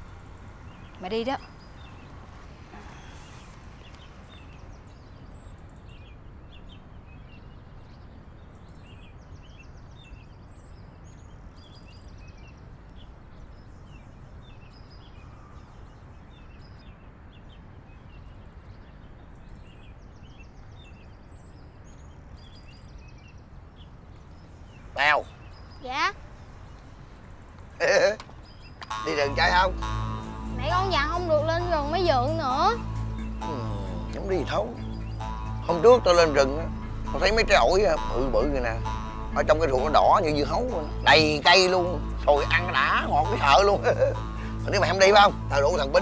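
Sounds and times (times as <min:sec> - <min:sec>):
small birds chirping: 0:00.0 - 0:46.0
high buzzy trills: 0:28.8 - 0:46.0.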